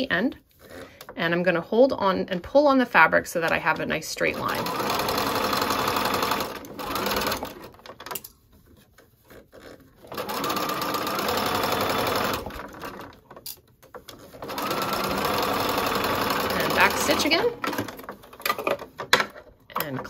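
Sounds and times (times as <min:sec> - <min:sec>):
sewing machine stitching: 0:03.4 - 0:08.2, 0:09.5 - 0:13.4, 0:14.0 - 0:19.0.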